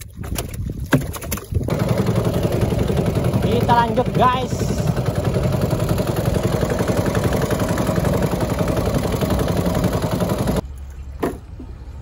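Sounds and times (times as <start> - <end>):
water rushing along hull: 0.0 - 10.9
boat engine running: 1.6 - 10.6.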